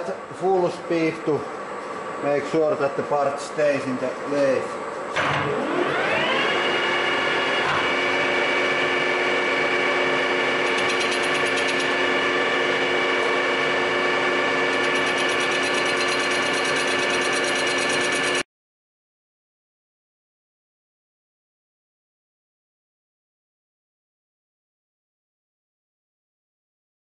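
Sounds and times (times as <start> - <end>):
metal lathe whining: 5.2 - 18.4.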